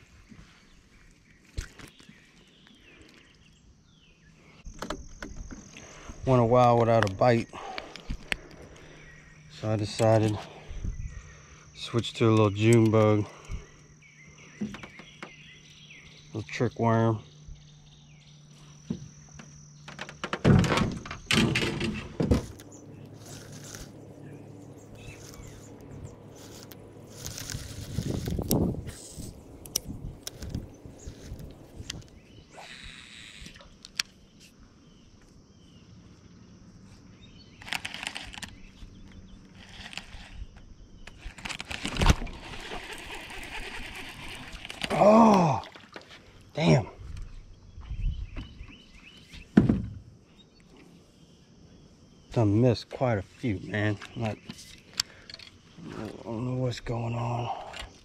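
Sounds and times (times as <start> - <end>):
insects trilling: 1.2 - 58.0
rough scraping and rustling: 21.5 - 32.2, 37.5 - 45.0.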